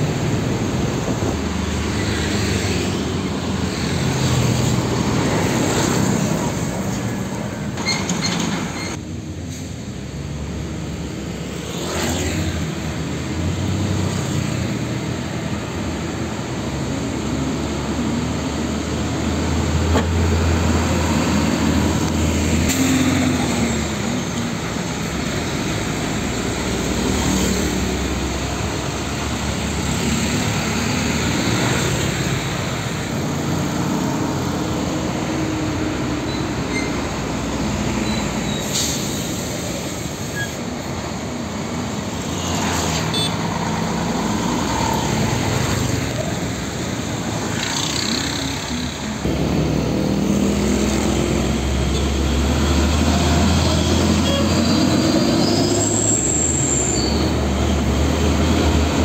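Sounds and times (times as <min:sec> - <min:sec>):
diesel trucks passing: 0:00.0 - 0:59.0
traffic noise: 0:00.0 - 0:59.0.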